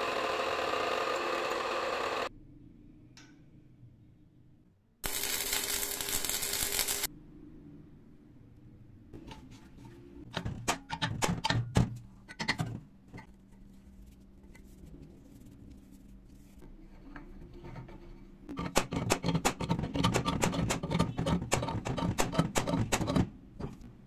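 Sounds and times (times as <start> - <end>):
arc welding hiss: 5.0 - 7.1.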